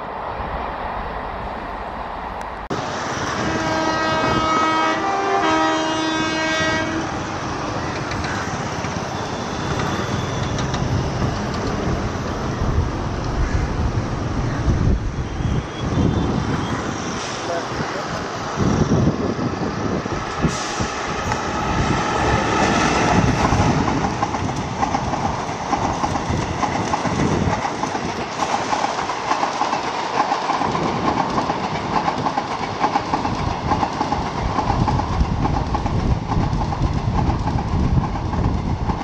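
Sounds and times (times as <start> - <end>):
train rolling rumble: 0.0 - 39.0
train wheels clicking on rail joints: 7.7 - 13.4, 20.2 - 39.0.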